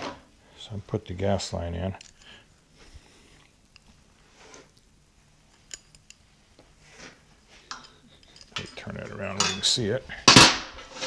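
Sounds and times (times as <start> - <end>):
low steady hum: 0.0 - 11.0
small metal parts clicking: 5.5 - 6.2.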